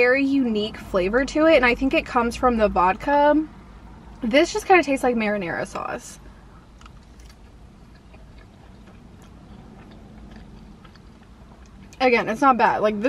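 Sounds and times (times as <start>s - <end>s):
person chewing: 6.6s - 12.0s.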